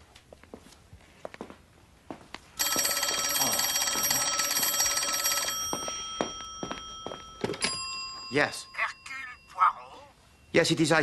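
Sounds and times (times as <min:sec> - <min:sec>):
telephone bell ringing: 0:02.6 - 0:10.5.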